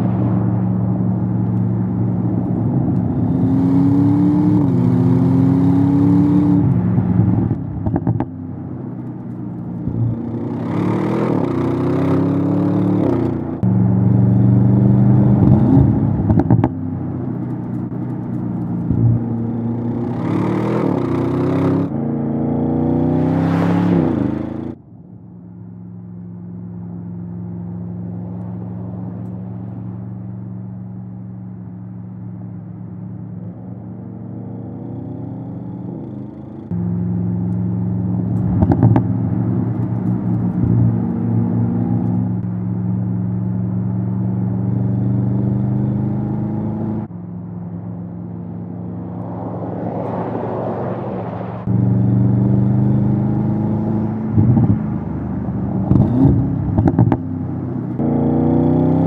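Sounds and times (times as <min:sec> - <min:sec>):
steady engine drone: 0:00.0 - 0:59.0
car engine accelerating hard: 0:33.3 - 0:47.1, 0:48.4 - 0:59.0.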